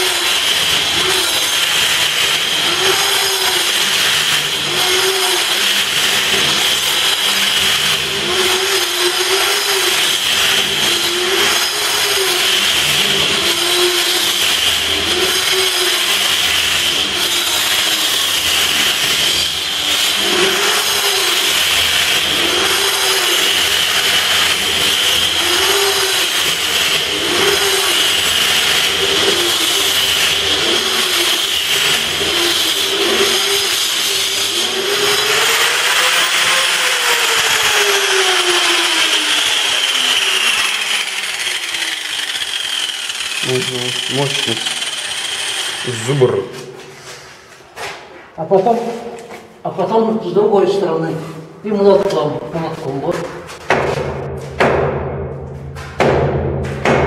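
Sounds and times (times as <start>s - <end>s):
angle grinder cutting concrete: 0.0s - 47.4s.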